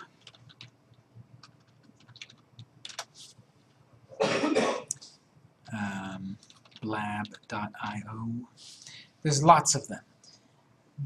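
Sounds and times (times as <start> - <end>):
person coughing: 4.2 - 5.0.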